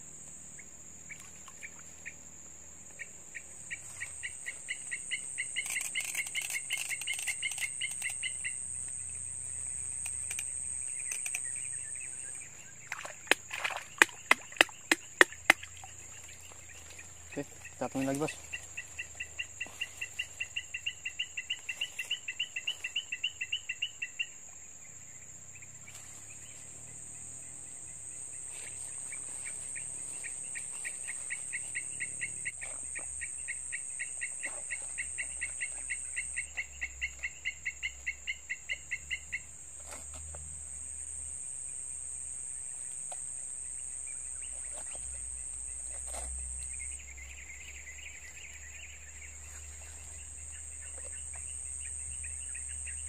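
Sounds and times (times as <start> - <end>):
high-pitched insect drone: 3.7 - 39.6
rapid even chirps: 4.2 - 8.7, 9.8 - 12.4.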